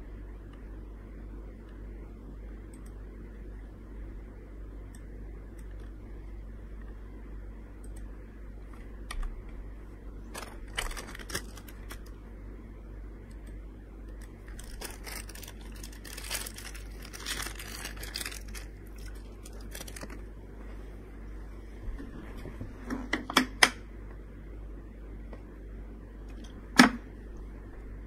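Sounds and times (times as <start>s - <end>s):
steady low hum: 0.0s - 28.0s
rustling handling noise: 10.2s - 12.2s, 14.2s - 21.0s.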